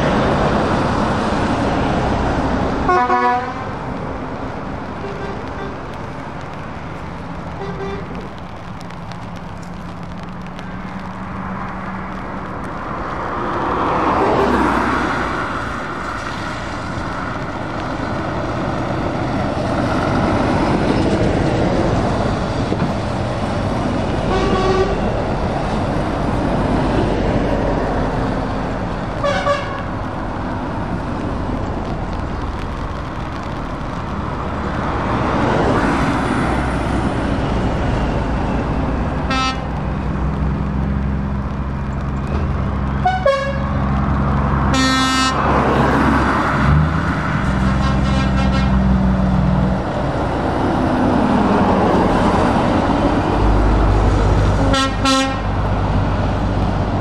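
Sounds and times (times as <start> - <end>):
lorries driving past: 0.0 - 57.0
tyre hiss on wet road: 0.0 - 57.0
truck horn: 2.9 - 3.8, 5.0 - 5.8, 7.6 - 8.2, 24.3 - 25.0, 29.2 - 29.9, 39.3 - 39.7, 43.0 - 43.8, 44.7 - 45.4, 47.7 - 49.0, 54.6 - 55.6.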